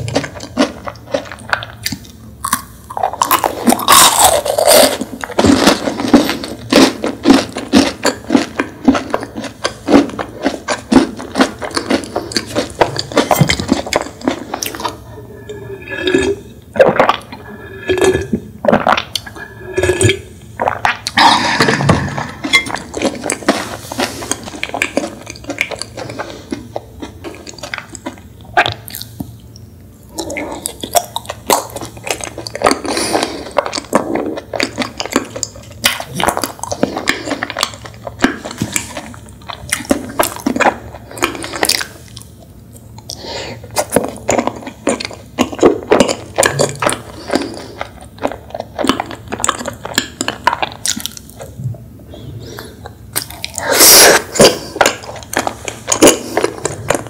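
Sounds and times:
chewing and mouth clicks: 0:00.0 - 0:51.7, 0:52.4 - 0:57.0
gulps of a drink: 0:52.4 - 0:57.0.

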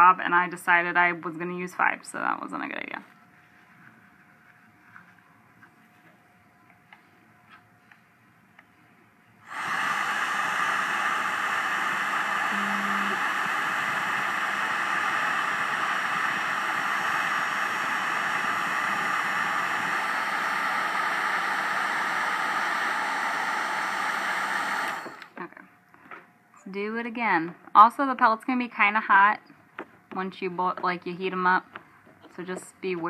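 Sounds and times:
heat gun blowing air: 0:09.4 - 0:25.4.

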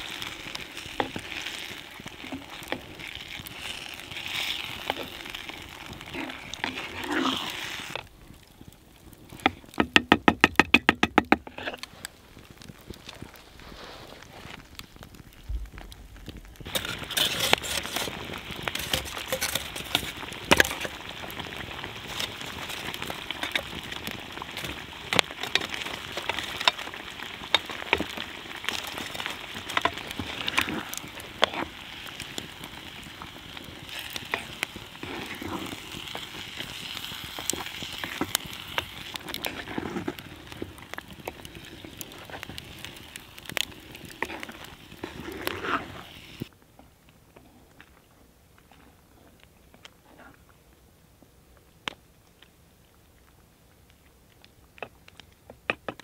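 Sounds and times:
campfire crackling and popping: 0:00.0 - 0:56.0
pot of stew simmering hiss: 0:00.0 - 0:56.0.

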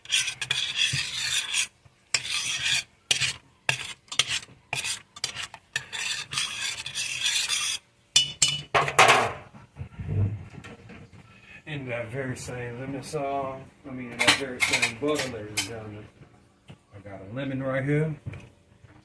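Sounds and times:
spoon scraping a saucepan: 0:00.0 - 0:09.4, 0:14.1 - 0:15.8.

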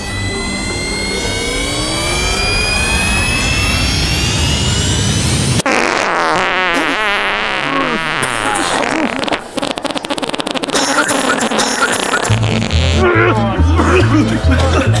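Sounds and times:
rising engine-like whoosh: 0:00.0 - 0:05.6
wobbling pitch-bending sound: 0:00.0 - 0:07.8.

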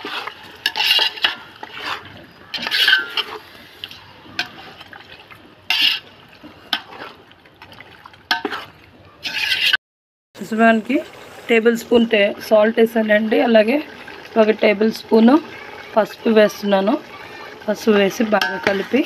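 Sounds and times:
metal spoon scraping metal pot: 0:00.0 - 0:04.8, 0:05.7 - 0:06.1, 0:08.3 - 0:09.8, 0:17.2 - 0:19.0.

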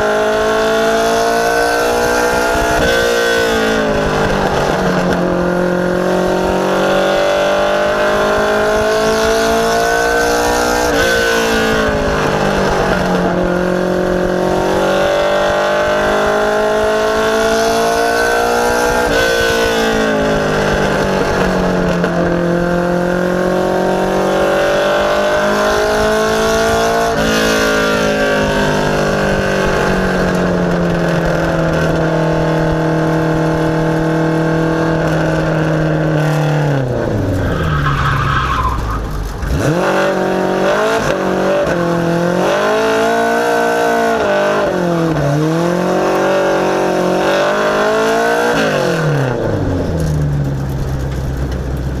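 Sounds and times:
race car engine revving: 0:00.0 - 0:52.0
tyre squeal: 0:37.3 - 0:39.6.

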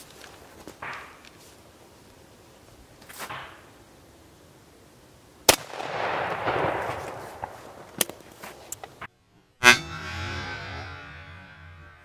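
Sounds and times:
shotgun shot: 0:05.5 - 0:07.8.

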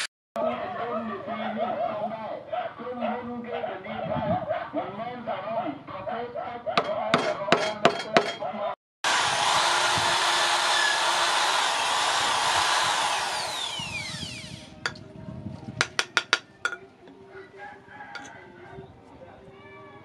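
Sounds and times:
electric drill boring into wood: 0:09.0 - 0:15.0.

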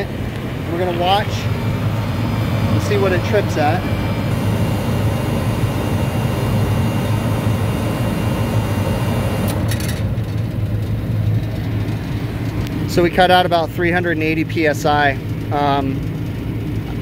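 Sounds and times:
condensing unit hum: 0:00.0 - 0:17.0.

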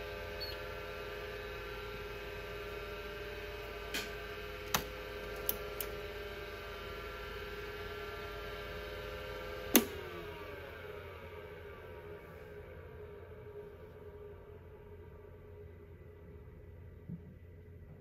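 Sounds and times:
hard drive whine: 0:00.0 - 0:18.0.

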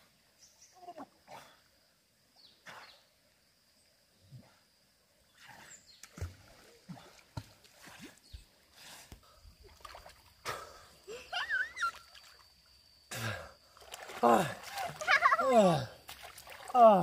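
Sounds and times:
water splashing and sloshing: 0:05.2 - 0:12.7, 0:13.6 - 0:17.0.

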